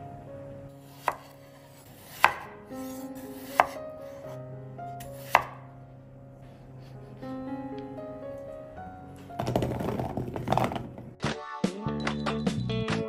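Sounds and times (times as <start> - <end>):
soft background music: 0.0 - 13.0
knife chopping potatoes: 0.9 - 4.4, 5.0 - 5.7.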